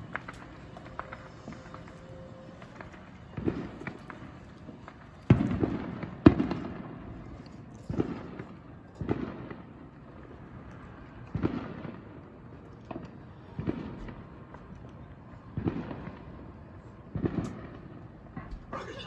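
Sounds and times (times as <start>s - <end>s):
fireworks booming: 0.0s - 7.2s, 7.9s - 10.4s, 11.3s - 13.0s, 17.1s - 19.0s.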